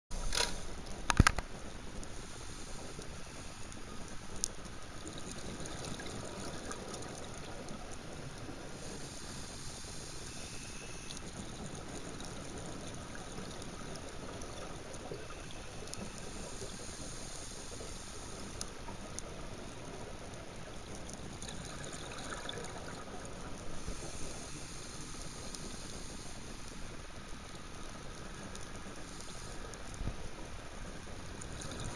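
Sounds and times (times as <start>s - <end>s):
muffled underwater hiss: 0.1s - 31.9s
faint underwater clicks: 0.2s - 31.9s.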